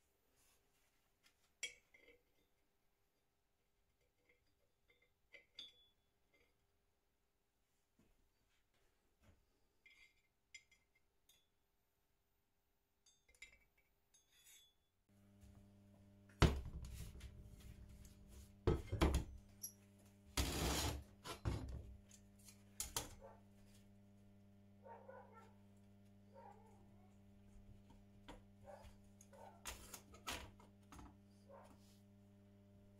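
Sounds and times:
steady electrical hum: 15.1 - 32.9.

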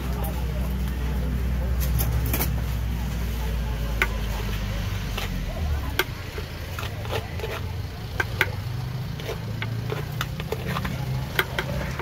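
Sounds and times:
metal spoon scraping shell: 5.0 - 12.0.

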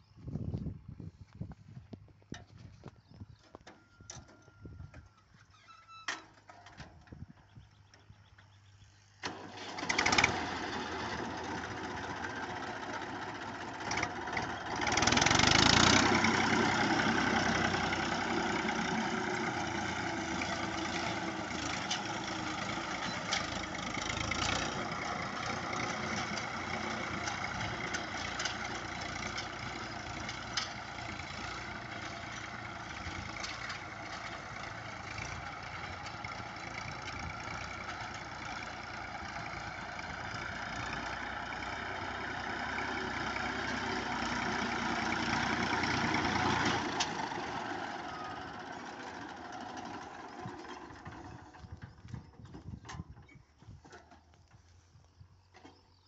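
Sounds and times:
tractor engine running: 0.0 - 56.0.

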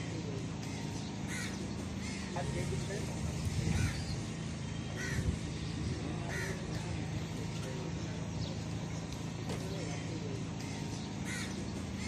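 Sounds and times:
steady low hum: 0.0 - 12.0
crows cawing: 0.6 - 2.8, 3.6 - 4.2, 4.9 - 5.4, 6.2 - 6.9, 10.6 - 12.0.

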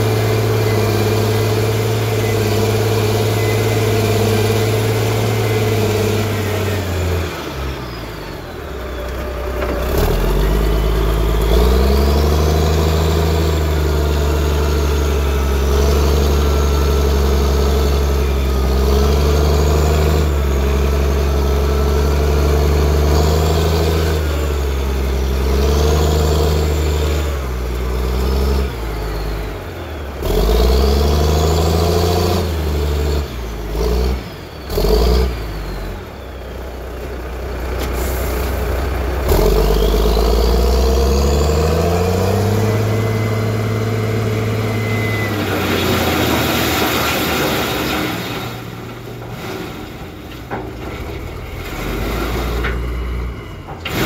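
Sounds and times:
excavator diesel engine: 0.0 - 54.0
hydraulic whine: 37.8 - 54.0.

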